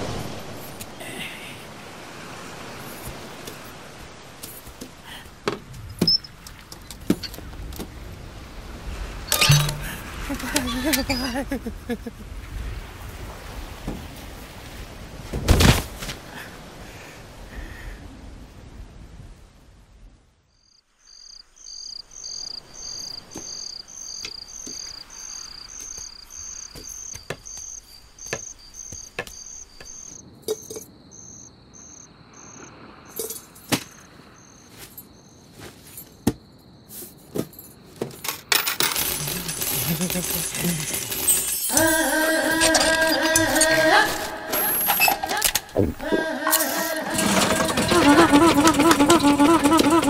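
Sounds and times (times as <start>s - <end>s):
crickets chirping: 0.0s - 15.2s, 20.5s - 50.0s
sharp clicks and clinks: 9.3s - 10.0s.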